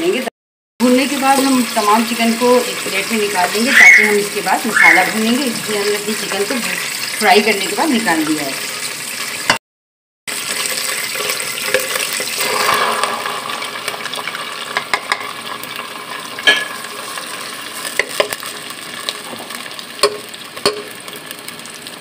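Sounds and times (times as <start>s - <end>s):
oil sizzling in a pan: 0.0s - 9.6s, 10.3s - 22.0s
spatula clicking against pan: 20.0s - 20.9s.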